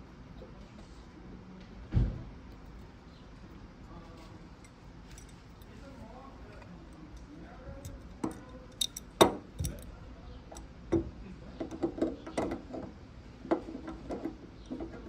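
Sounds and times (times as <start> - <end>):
metal tools clinking: 4.6 - 5.9, 6.5 - 9.9.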